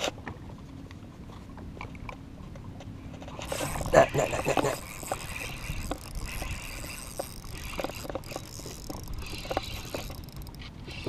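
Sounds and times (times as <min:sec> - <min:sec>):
fishing reel being cranked: 0:03.4 - 0:11.0.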